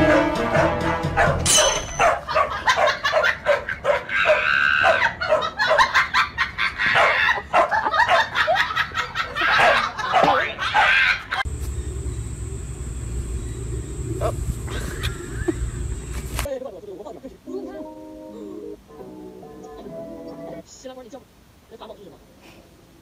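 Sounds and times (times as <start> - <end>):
dogs barking and yapping: 0.0 - 12.4
steady low hum: 11.5 - 16.5.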